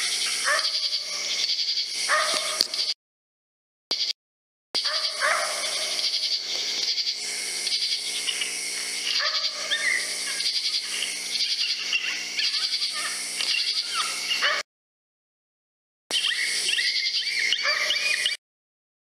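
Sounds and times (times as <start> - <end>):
electronic animal distress calls: 0.0 - 3.0, 4.8 - 14.6, 16.1 - 18.4.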